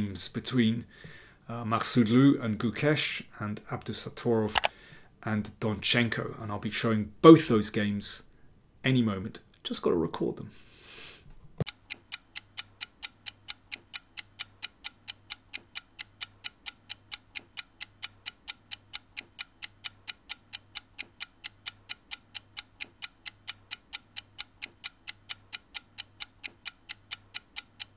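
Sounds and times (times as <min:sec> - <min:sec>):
clock ticking: 0:11.6 - 0:27.9.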